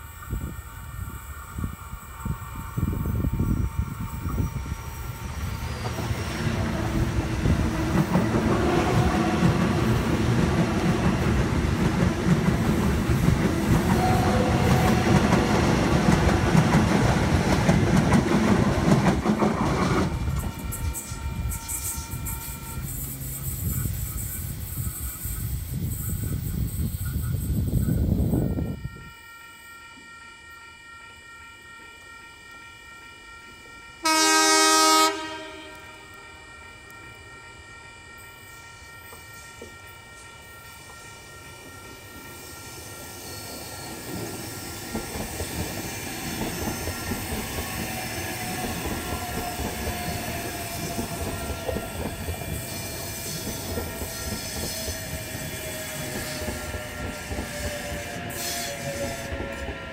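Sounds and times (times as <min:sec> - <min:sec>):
train wheels rumbling on rail: 0:00.0 - 0:29.1, 0:33.4 - 0:59.9
train whine: 0:00.0 - 0:59.9
train horn: 0:06.1 - 0:11.4, 0:13.1 - 0:16.7, 0:28.5 - 0:42.5, 0:46.3 - 0:59.9.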